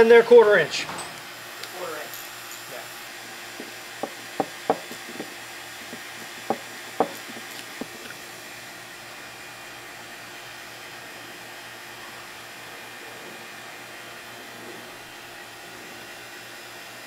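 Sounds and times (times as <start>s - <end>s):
tools clacking on wooden bench: 3.6s - 8.0s.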